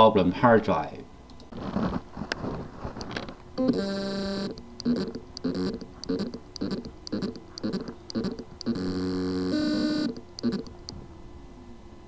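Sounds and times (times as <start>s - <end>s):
hard drive motor buzzing: 3.6s - 11.0s.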